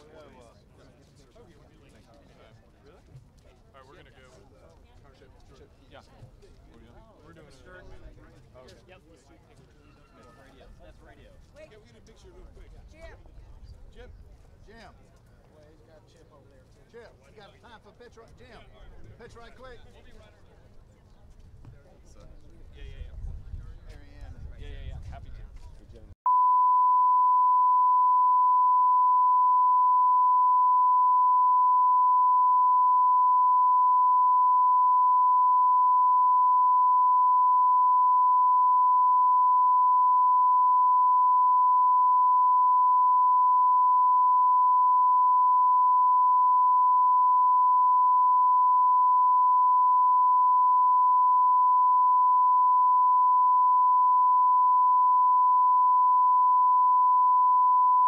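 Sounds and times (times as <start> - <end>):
steady test tone: 26.3 - 58.0.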